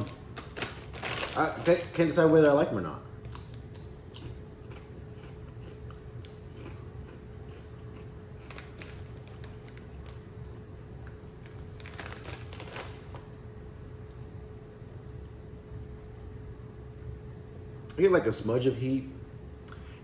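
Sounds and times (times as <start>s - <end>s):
chip bag crinkling: 0.0s - 4.0s, 5.2s - 13.3s
faint steady hum: 0.0s - 20.0s
chip being chewed: 3.2s - 13.2s.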